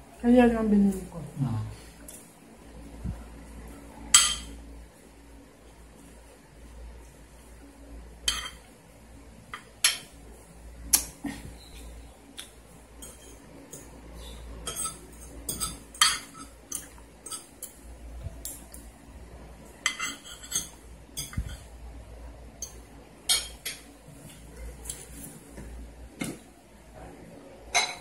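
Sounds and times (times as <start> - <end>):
cutlery clinking on plates: 4.1 - 4.6, 8.3 - 8.7, 14.6 - 17.8, 19.8 - 21.7, 22.6 - 23.9, 27.7 - 28.0.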